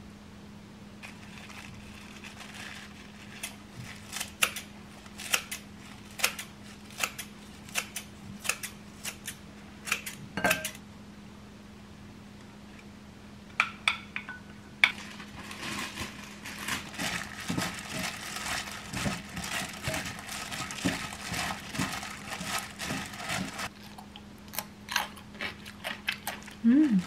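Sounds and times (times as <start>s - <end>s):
plastic glove crinkling: 1.0s - 7.7s, 14.9s - 23.8s.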